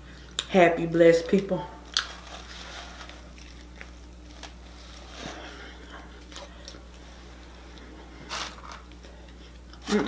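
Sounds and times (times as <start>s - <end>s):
steady low hum: 0.0s - 10.0s
chewing food: 1.9s - 7.0s.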